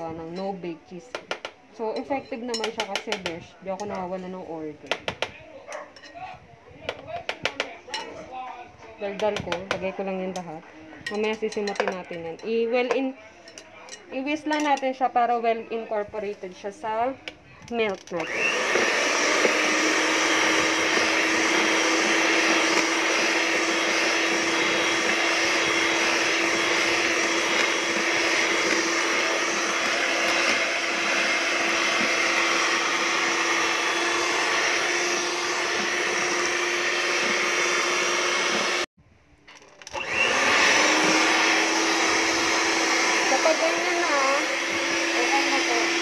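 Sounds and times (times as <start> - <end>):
electric hand mixer running: 18.2 - 38.9, 39.9 - 46.0.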